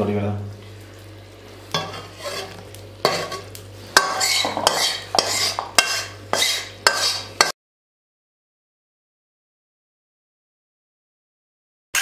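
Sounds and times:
spatula scraping pan: 1.7s - 7.6s
spatula clinking against pan: 4.0s - 7.5s.

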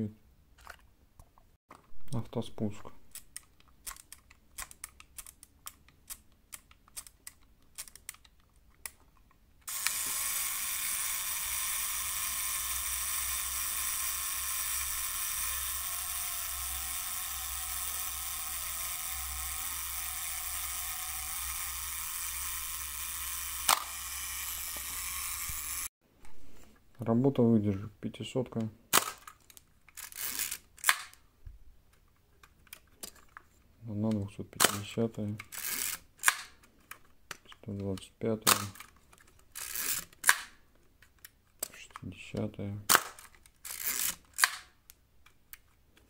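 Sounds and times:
small mechanical clicks: 3.1s - 25.9s, 29.0s - 31.2s, 34.6s - 45.7s
clockwork buzzing: 9.7s - 25.9s
camera shutter click: 23.6s - 25.8s.

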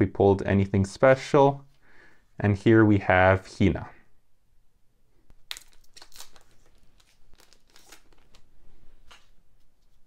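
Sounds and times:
foil wrapper crinkling and tearing: 5.4s - 9.4s.

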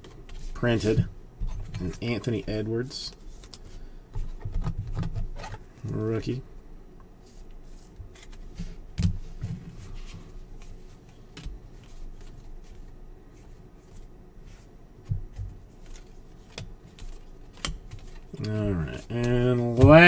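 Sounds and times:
trading cards flipping and sliding: 7.2s - 8.8s, 9.7s - 20.0s.

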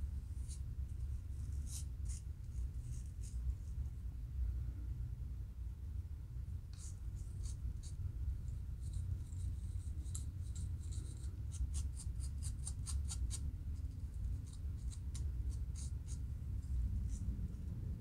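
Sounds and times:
low steady rumble: 0.0s - 18.0s
comb scratching across scalp: 0.3s - 3.8s, 6.7s - 17.4s.

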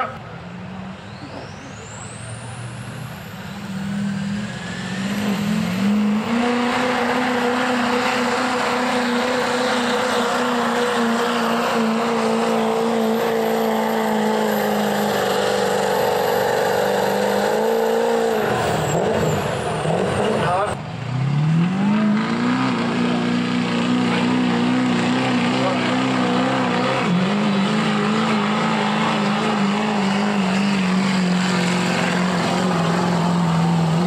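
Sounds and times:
diesel engine at full throttle: 0.0s - 34.0s.

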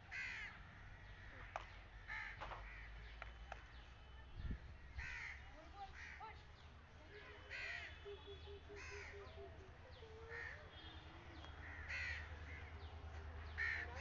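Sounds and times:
crows cawing: 0.0s - 3.1s, 4.8s - 6.4s, 7.4s - 9.6s, 10.2s - 14.0s.

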